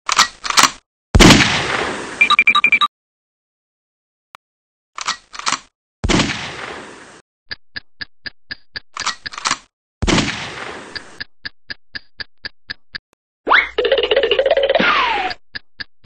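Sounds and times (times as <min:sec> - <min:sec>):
even ticking: 0:07.5 - 0:09.4, 0:10.9 - 0:13.0, 0:13.8 - 0:16.0.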